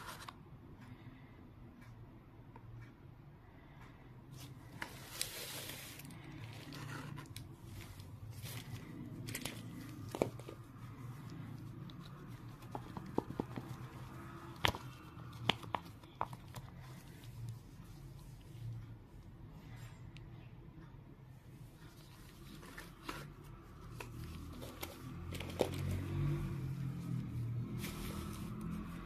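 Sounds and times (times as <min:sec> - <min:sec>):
paper rustling and crinkling: 0:04.8 - 0:10.7, 0:27.6 - 0:29.0.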